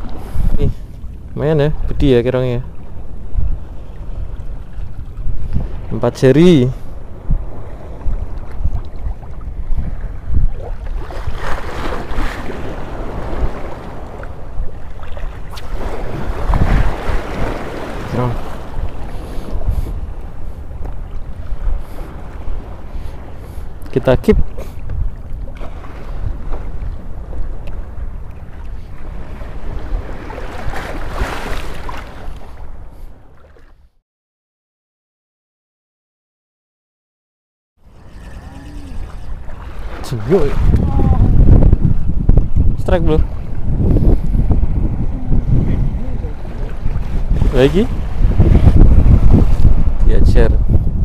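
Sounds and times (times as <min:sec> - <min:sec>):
wind buffeting microphone: 0:00.0 - 0:33.4, 0:37.8 - 0:51.0
water sloshing and lapping: 0:03.6 - 0:06.2, 0:07.1 - 0:34.0, 0:37.8 - 0:41.7, 0:43.2 - 0:49.8.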